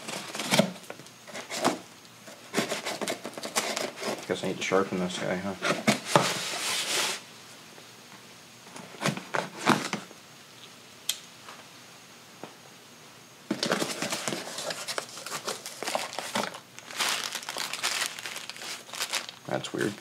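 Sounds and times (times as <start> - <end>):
plastic wrapping crinkling: 13.5 - 20.0.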